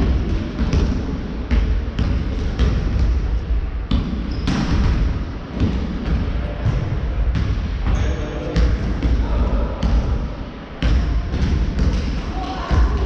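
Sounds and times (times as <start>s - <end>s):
basketball bouncing on wooden floor: 0.0s - 3.3s
low hum of large hall: 0.0s - 13.0s.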